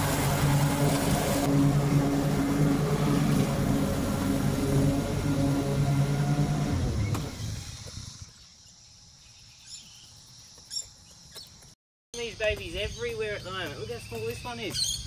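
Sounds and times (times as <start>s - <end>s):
mower engine running: 0.0s - 8.3s.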